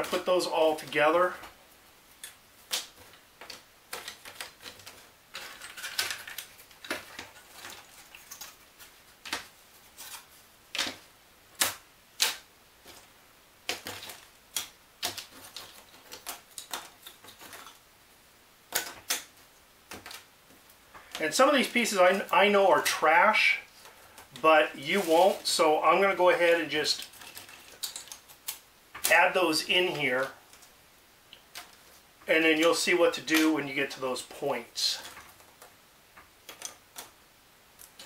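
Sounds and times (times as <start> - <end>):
wooden pieces clicking and clattering: 2.2 - 17.9, 18.7 - 23.0, 26.8 - 29.2, 31.4 - 32.0, 34.9 - 38.0
paper rustle: 2.6 - 17.8, 18.7 - 30.8.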